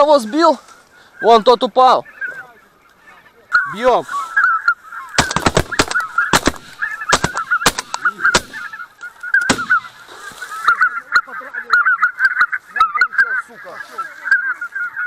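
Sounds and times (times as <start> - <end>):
geese honking: 0.0 - 15.0
shotgun shots: 5.2 - 8.7, 9.5 - 10.0.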